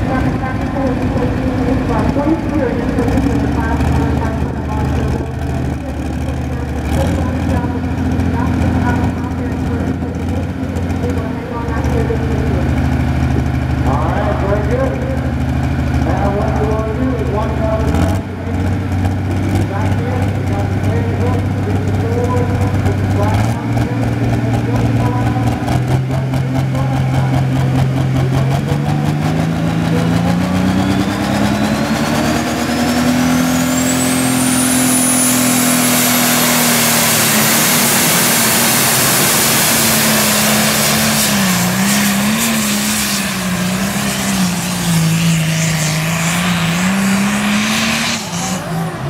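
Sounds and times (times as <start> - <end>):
tractor diesel engine under load: 0.0 - 49.0
turbo whine: 19.1 - 49.0.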